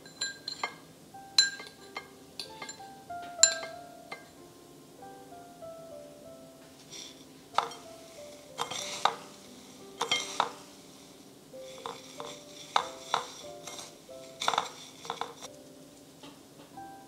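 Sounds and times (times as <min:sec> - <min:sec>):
spoon clinking against ceramic bowl: 0:00.0 - 0:04.3, 0:06.9 - 0:09.4, 0:10.0 - 0:10.8, 0:11.7 - 0:15.5
soft background music: 0:00.0 - 0:17.0
breadcrumbs rustling: 0:06.8 - 0:15.6.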